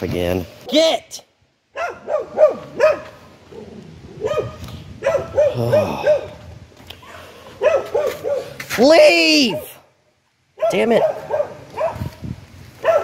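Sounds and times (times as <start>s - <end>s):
small dog barking: 1.7s - 3.2s, 4.2s - 6.4s, 7.6s - 8.6s, 10.6s - 12.2s, 12.8s - 13.0s.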